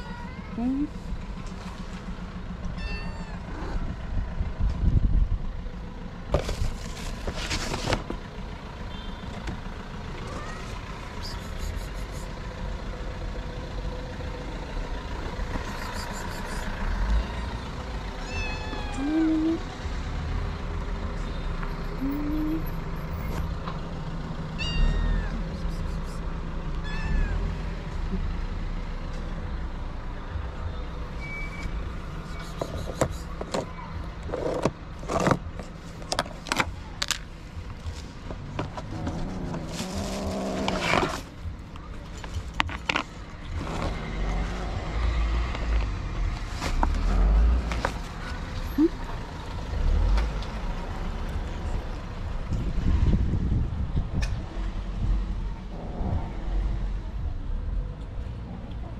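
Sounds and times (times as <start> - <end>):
vehicle traffic rumble: 0.0 - 58.9
kittens meowing: 2.7 - 3.9, 18.2 - 19.6, 24.6 - 26.2, 26.8 - 27.6.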